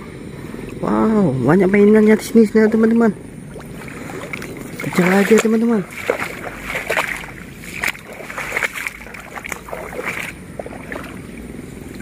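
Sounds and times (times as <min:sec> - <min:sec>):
footsteps wading through water: 0:03.5 - 0:12.0
plants brushing: 0:03.9 - 0:10.4.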